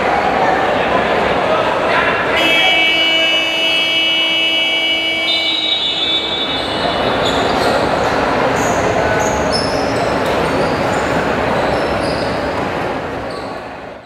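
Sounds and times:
crowd din in a gym: 0.0 - 14.0
scoreboard buzzer horn: 2.4 - 7.1
short high shoe squeaks: 6.3 - 8.0, 11.6 - 12.5.

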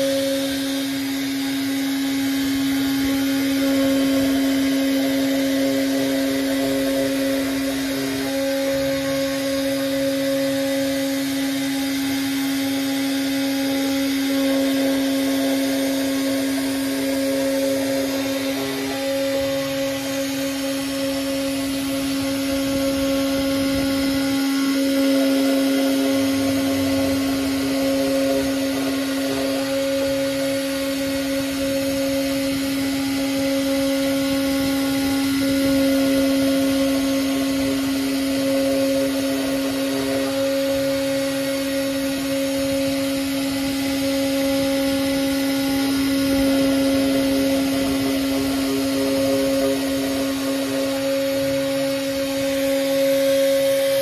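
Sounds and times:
high cutting tone: 0.0 - 54.0
router spindle whining: 0.0 - 54.0.

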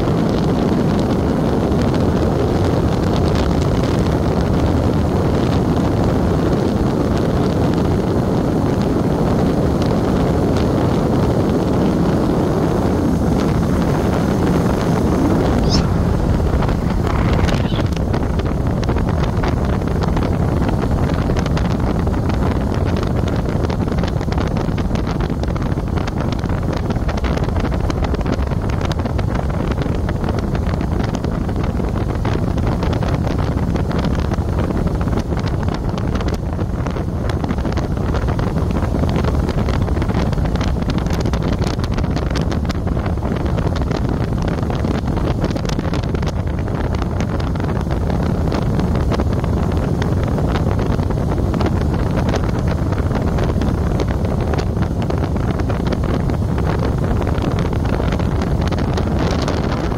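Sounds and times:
wind buffeting microphone: 0.0 - 59.9
road and vehicle noise: 5.8 - 24.2
brief high chirp: 15.6 - 16.0.

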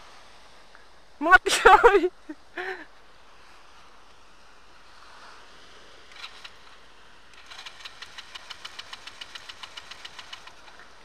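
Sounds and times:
atv engine idling unevenly: 7.4 - 11.0.

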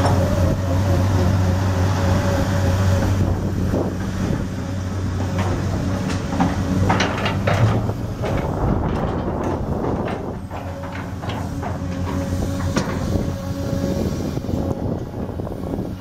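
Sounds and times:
excavator diesel engine drone: 0.0 - 16.0
thin engine whine: 0.0 - 16.0
crawler tracks clanking and squeaking: 5.0 - 16.0.

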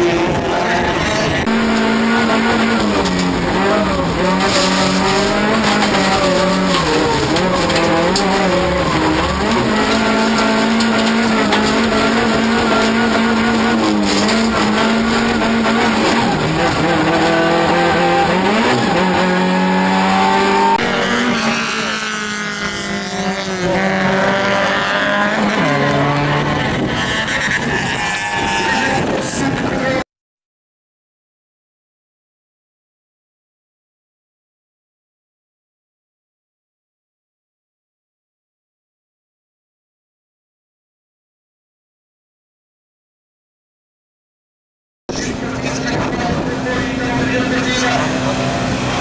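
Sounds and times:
race car engine revving: 0.0 - 30.0, 45.1 - 49.0
tyres on gravel: 1.5 - 20.6.

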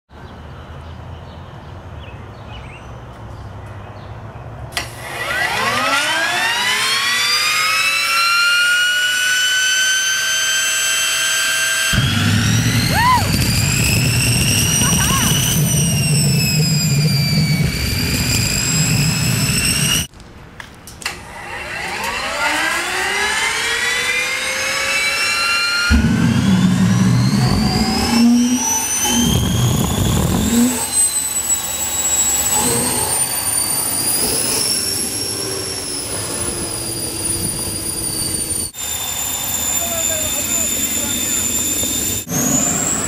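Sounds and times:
gas turbine engine whine: 4.7 - 20.1, 20.9 - 43.0
low rumble: 12.0 - 20.1, 25.8 - 39.1.

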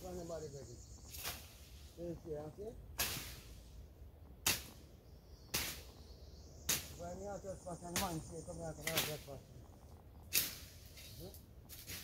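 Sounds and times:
machete chopping through brush: 1.1 - 1.7, 3.0 - 3.6, 4.4 - 4.8, 5.5 - 5.9, 6.7 - 7.0, 7.9 - 8.2, 8.8 - 9.4, 10.3 - 12.0.

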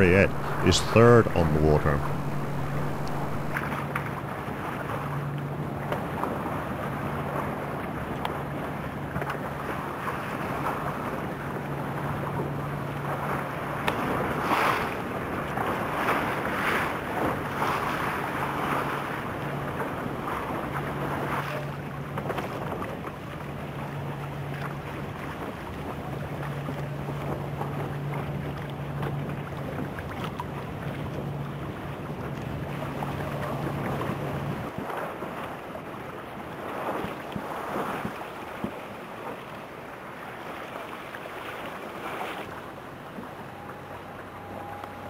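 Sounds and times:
low motor hum: 0.0 - 3.9, 43.0 - 45.0
rushing water: 0.0 - 45.0.

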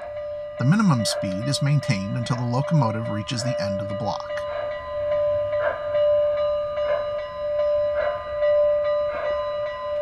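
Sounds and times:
locomotive bell ringing: 0.0 - 10.0.

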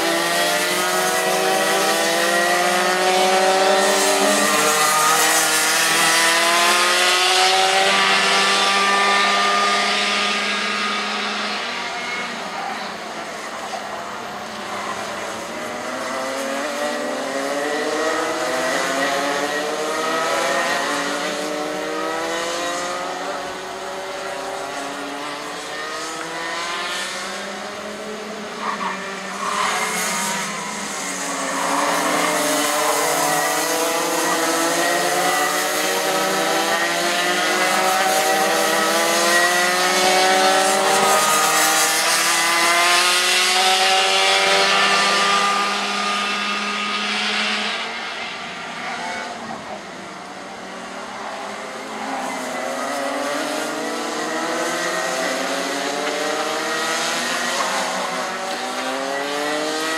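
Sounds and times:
racing kart engines: 0.0 - 59.9.

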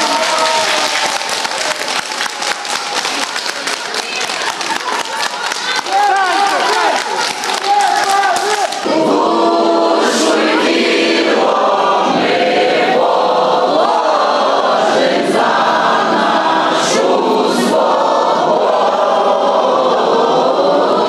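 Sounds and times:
crowd singing in unison: 4.9 - 21.0.

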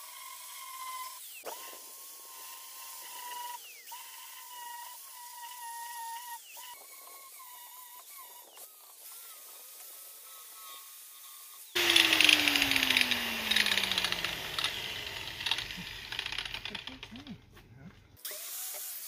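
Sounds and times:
angle grinder grinding metal: 6.4 - 17.4.

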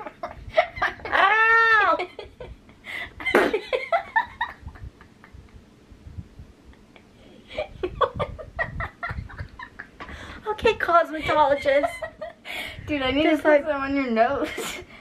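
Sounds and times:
girls giggling: 0.0 - 5.6, 7.5 - 10.3, 11.2 - 12.4.

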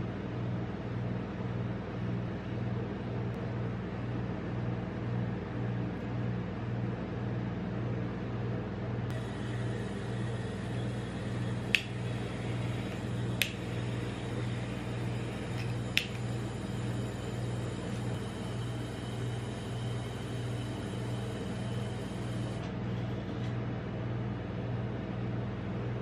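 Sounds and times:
refrigeration unit humming: 0.0 - 26.0
kitchen torch clicks: 9.1 - 17.0.

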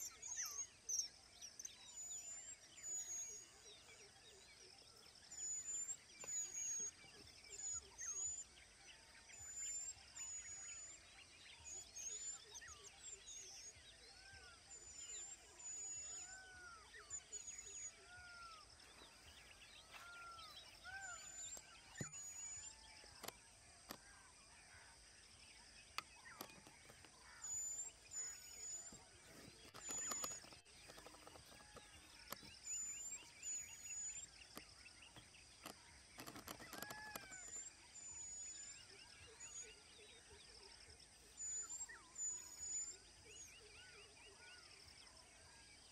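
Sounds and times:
birds calling: 0.0 - 45.9
sharp clicks: 29.7 - 32.5, 34.5 - 37.6.

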